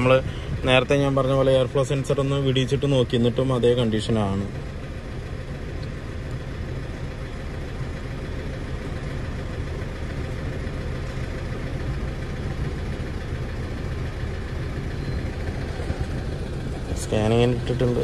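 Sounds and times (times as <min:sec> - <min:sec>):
diesel engine idling unevenly: 0:00.0 - 0:18.0.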